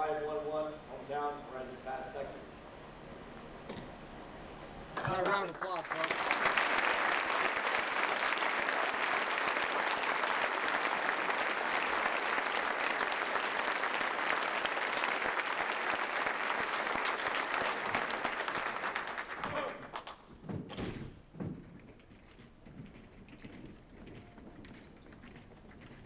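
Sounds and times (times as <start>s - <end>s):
large audience applauding: 5.0s - 20.2s.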